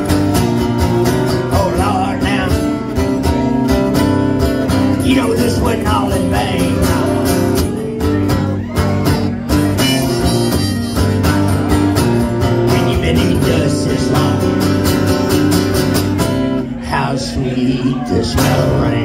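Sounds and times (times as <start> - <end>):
strummed acoustic guitars: 0.0 - 19.0
harmonica solo: 9.6 - 12.2.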